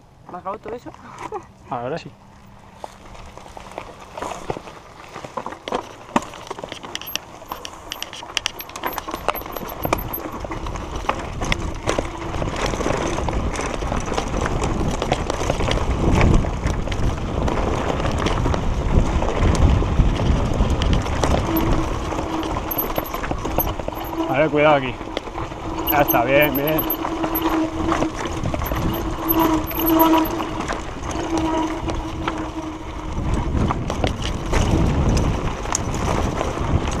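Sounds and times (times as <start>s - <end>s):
tyres crunching over gravel: 2.7s - 8.9s
bike rattling with clicks: 3.4s - 37.0s
wind rumble on microphone: 7.0s - 37.0s.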